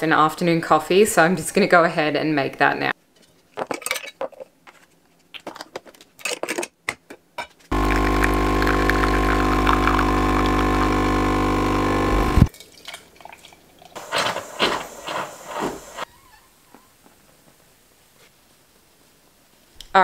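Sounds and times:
espresso machine pump humming: 7.7 - 12.5.

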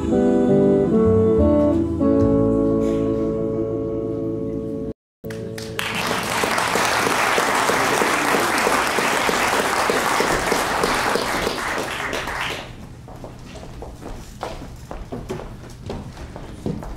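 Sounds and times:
audience applauding: 5.3 - 12.8.

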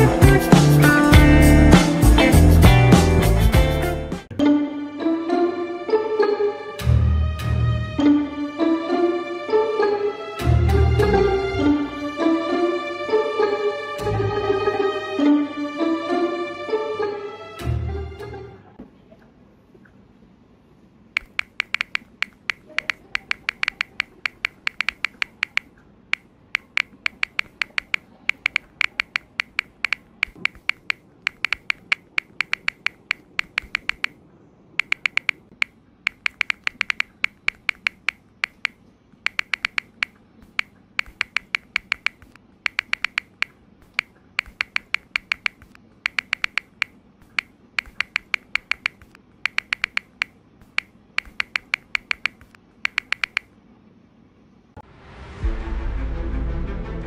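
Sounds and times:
phone keyboard taps: 21.2 - 25.7, 26.6 - 34.2, 34.8 - 53.5.

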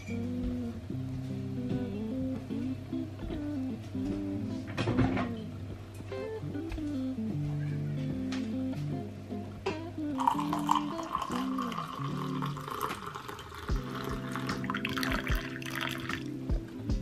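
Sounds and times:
coffee pouring into a mug: 10.2 - 16.3.

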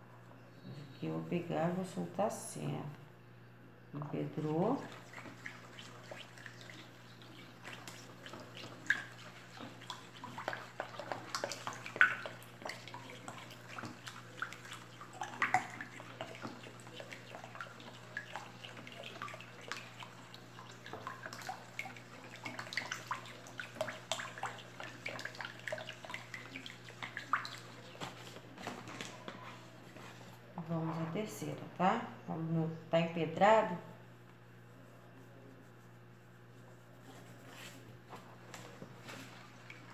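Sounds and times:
liquid sloshing while stirred: 4.4 - 30.4.

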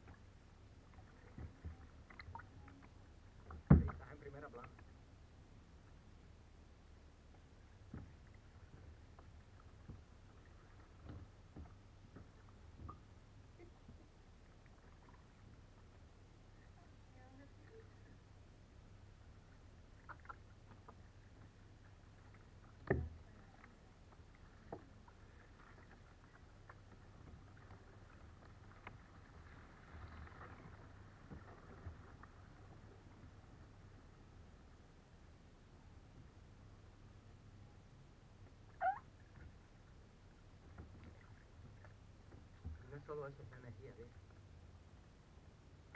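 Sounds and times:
paddle strokes and splashes: 0.0 - 6.1, 6.8 - 45.9
low steady rumble: 0.0 - 45.9
water dripping: 0.8 - 4.0
paddle knocks: 3.4 - 4.1, 22.8 - 23.3.

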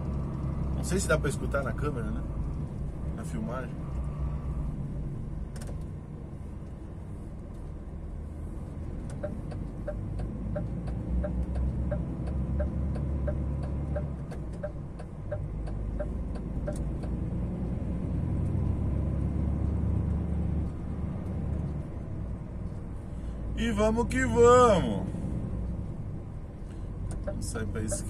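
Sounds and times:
diesel truck engine drone: 0.0 - 28.0
light ticking: 9.0 - 17.2.

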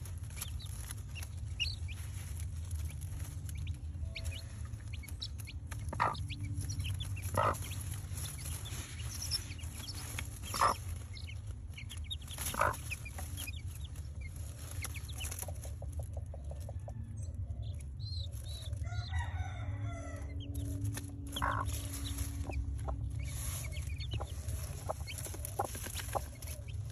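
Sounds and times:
low rumble: 0.0 - 18.8, 19.8 - 26.9
chickens clucking: 0.0 - 26.9
rooster crowing: 18.8 - 20.4.

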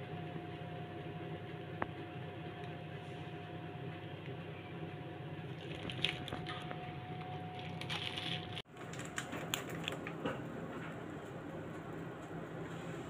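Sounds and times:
steady hum: 0.0 - 8.7
plastic piping bag crinkling: 5.5 - 6.7, 7.5 - 10.0.

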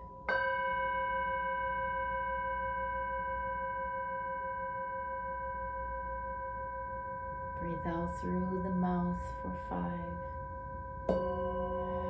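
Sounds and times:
singing bowl ringing: 0.0 - 12.0.

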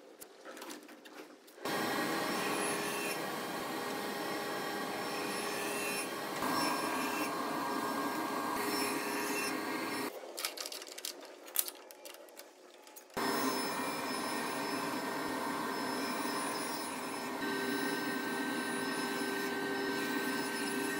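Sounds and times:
table saw cutting wood: 1.6 - 10.1, 13.2 - 20.9.

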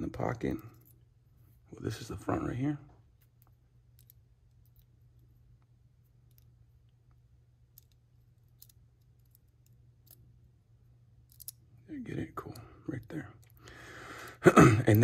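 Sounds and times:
low steady hum: 0.0 - 15.0
small metal parts clicking: 3.2 - 5.3, 6.2 - 6.6, 7.7 - 10.3, 11.2 - 11.6.

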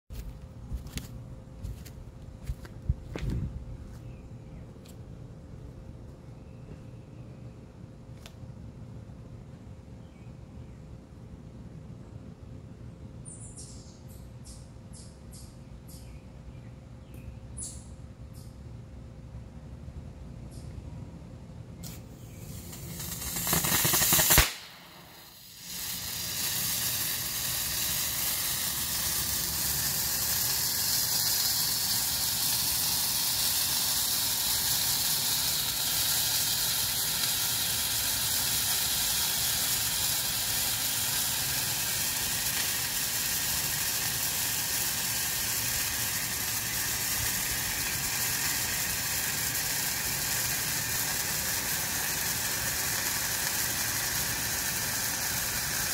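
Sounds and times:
flare burning with loud hiss: 21.8 - 55.9.

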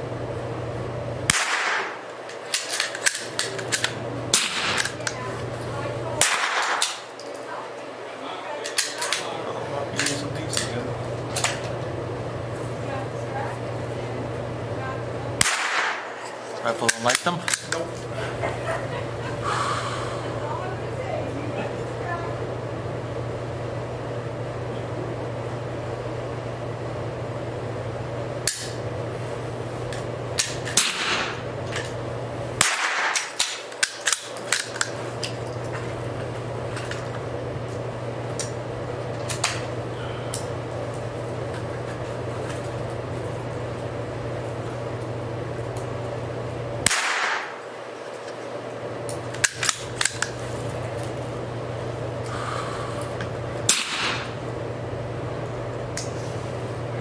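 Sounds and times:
low steady hum: 0.0 - 57.0
rifle shot crack: 1.3 - 2.0, 4.3 - 4.9, 6.2 - 7.0, 15.4 - 16.1, 30.8 - 31.4, 32.6 - 33.4, 46.8 - 47.6, 53.7 - 54.4.

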